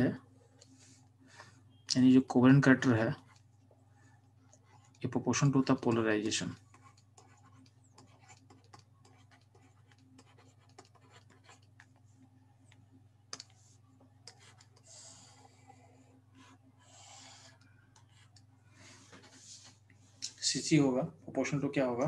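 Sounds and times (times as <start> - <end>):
low steady hum: 0.0 - 22.0
stylus tapping and scratching: 2.7 - 15.9.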